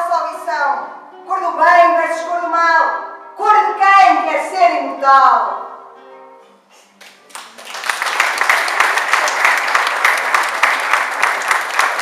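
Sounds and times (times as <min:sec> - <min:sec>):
audience applauding: 0:07.0 - 0:12.0.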